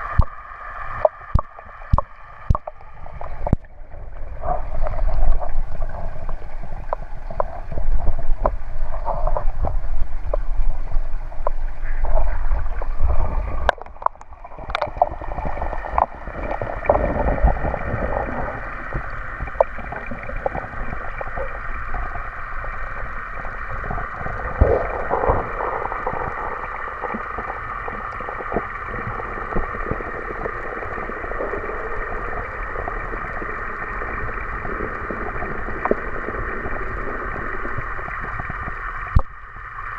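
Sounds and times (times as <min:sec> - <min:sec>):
faint clicks: 0:11.4 - 0:31.6
underwater rushing hiss: 0:11.7 - 0:39.2.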